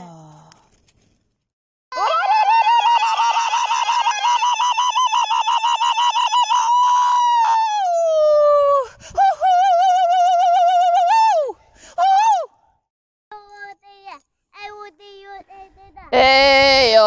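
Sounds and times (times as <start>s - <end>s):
woman whooping with hand patting mouth: 7.3s - 12.4s.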